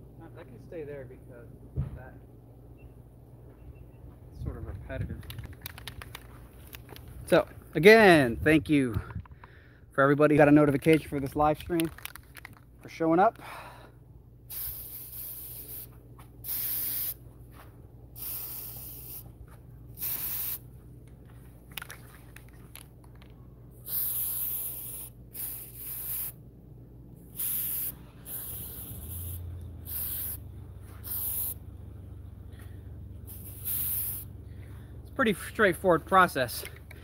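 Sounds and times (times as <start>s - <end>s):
spray paint can hissing: 14.5s - 17.2s, 18.1s - 19.3s, 19.9s - 20.7s, 23.8s - 26.4s, 27.3s - 31.6s, 33.2s - 34.4s.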